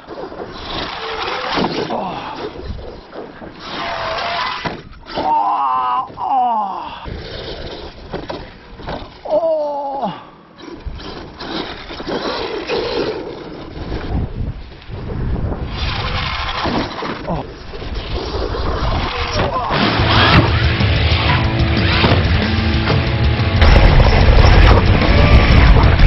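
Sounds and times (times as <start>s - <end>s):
rc truck running on sand: 0.0s - 5.2s, 7.0s - 9.3s, 10.5s - 26.0s
wind buffeting microphone: 13.6s - 19.7s, 23.6s - 26.0s.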